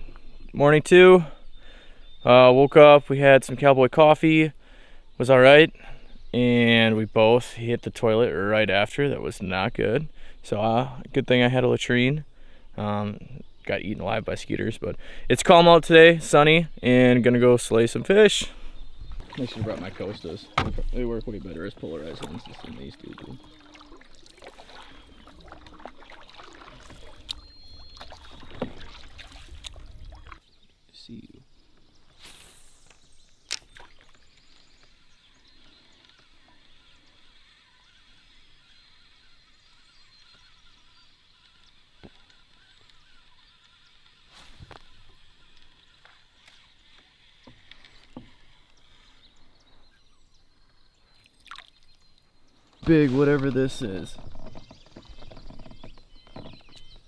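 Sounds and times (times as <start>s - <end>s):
paddle strokes through water: 18.6s - 30.5s, 52.5s - 57.0s
knocks and taps in a canoe: 19.1s - 30.4s, 41.4s - 43.8s, 44.6s - 48.8s, 52.6s - 57.0s
knocks against canoe hull: 19.7s - 21.0s.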